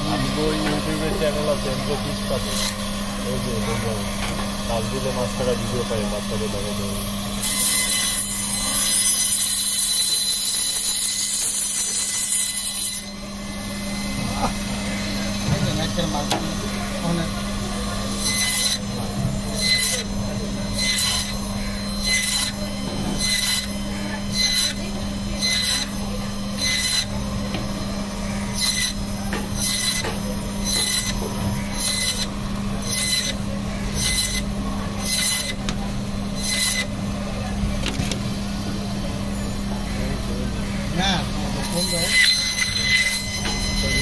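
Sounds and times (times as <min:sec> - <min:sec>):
band saw humming: 0:00.0 - 0:44.0
saw blade rasping through fish: 0:07.4 - 0:13.1, 0:18.2 - 0:27.2, 0:28.2 - 0:35.7, 0:41.6 - 0:44.0.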